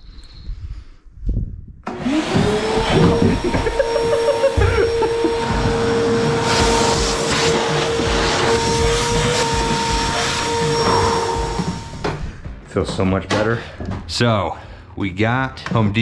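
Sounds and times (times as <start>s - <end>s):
shop vacuum motor whining: 1.9s - 12.3s.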